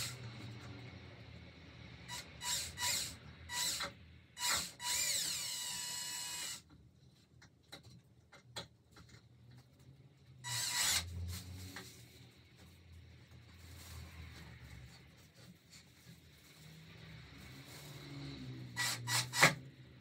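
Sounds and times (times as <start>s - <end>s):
cordless drill whining: 2.1s - 6.6s, 10.5s - 11.2s, 18.8s - 19.6s.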